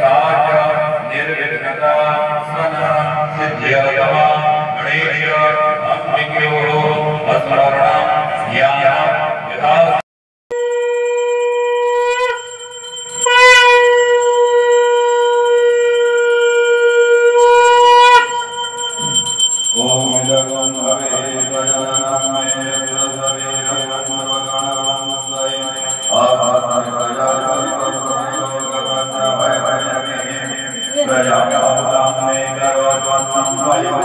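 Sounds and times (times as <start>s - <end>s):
conch shell blown: 10.5s - 19.7s.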